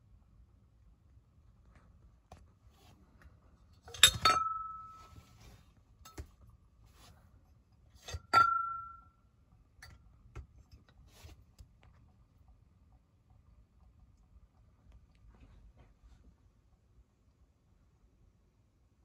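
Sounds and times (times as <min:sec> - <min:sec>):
glass chimneys clinking: 0:03.9 - 0:05.2, 0:08.1 - 0:09.1.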